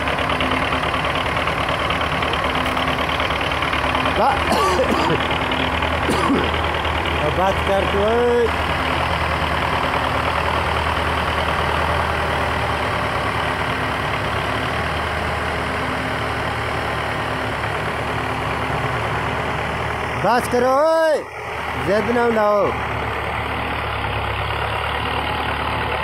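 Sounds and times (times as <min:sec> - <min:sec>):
tractor diesel engines under load: 0:00.0 - 0:26.0.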